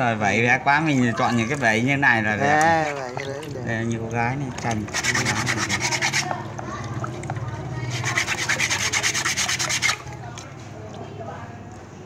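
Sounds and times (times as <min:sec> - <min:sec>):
wet grit scrubbing copper plate: 0:04.6 - 0:10.6.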